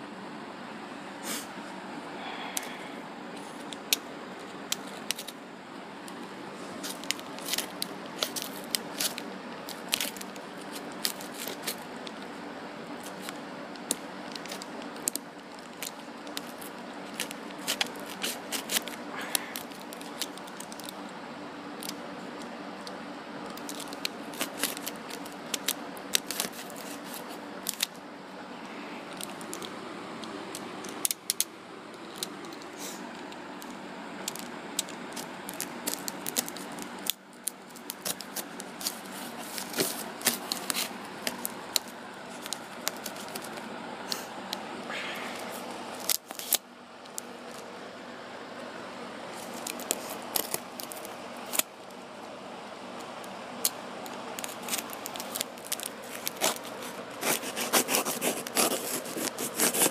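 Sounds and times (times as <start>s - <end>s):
tape and cardboard crackling: 2.2s - 5.4s, 6.0s - 21.1s, 21.7s - 28.0s, 28.7s - 47.7s, 49.3s - 52.0s, 53.0s - 59.9s
box cutter slitting packing tape: 54.4s - 59.9s.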